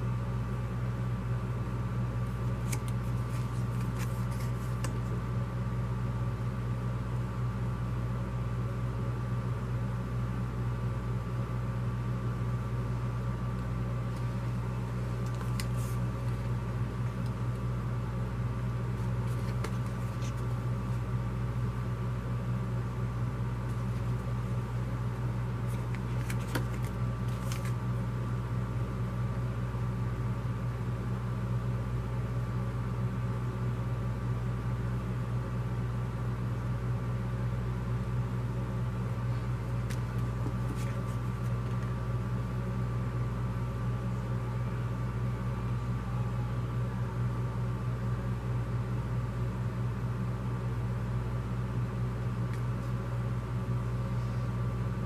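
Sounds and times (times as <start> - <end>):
low electrical hum: 0.0 - 55.0
paper crackling: 2.3 - 5.2, 15.2 - 17.4, 19.0 - 21.1, 25.6 - 27.8, 39.7 - 42.0.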